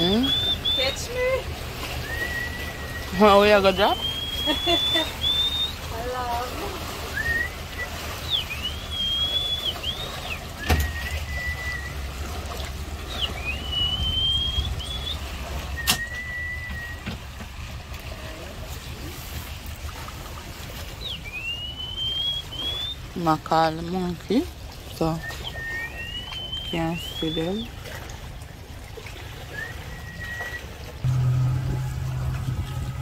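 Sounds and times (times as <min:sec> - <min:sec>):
person whistling a call: 0:02.0 - 0:03.2, 0:04.0 - 0:05.8, 0:07.1 - 0:12.0, 0:13.2 - 0:15.2, 0:15.8 - 0:17.0, 0:29.5 - 0:30.7
low steady rumble: 0:10.3 - 0:20.5, 0:30.9 - 0:33.0.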